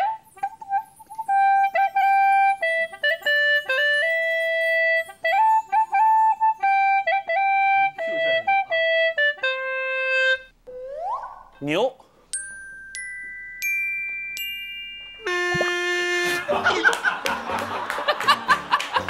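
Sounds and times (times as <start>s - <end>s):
gourd flute melody: 0.0s - 11.6s, 13.2s - 19.0s.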